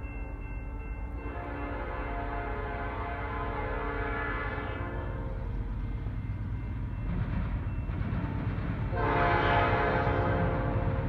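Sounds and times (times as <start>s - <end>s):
low rumble of train: 0.0s - 11.0s
locomotive air horn blast: 1.2s - 5.3s, 8.9s - 11.0s.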